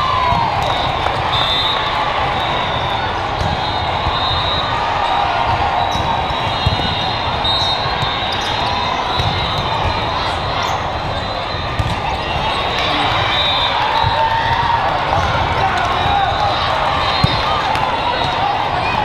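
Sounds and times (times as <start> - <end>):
hubbub of voices in a hall: 0.0 - 19.0
volleyballs being struck: 11.0 - 12.8.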